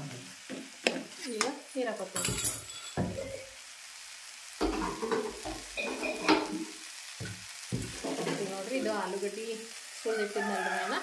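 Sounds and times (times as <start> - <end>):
curry sizzling: 0.0 - 11.0.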